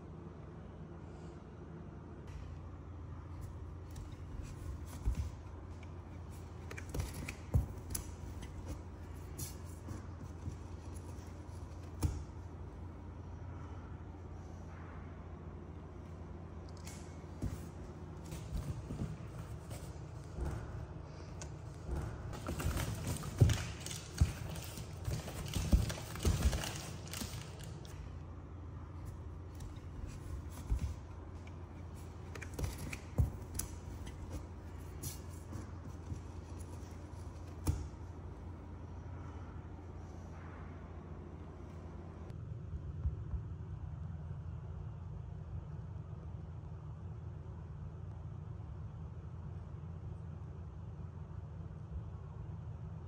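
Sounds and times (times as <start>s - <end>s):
low steady hum: 0.0s - 53.0s
cardboard tearing and rustling: 22.4s - 27.8s.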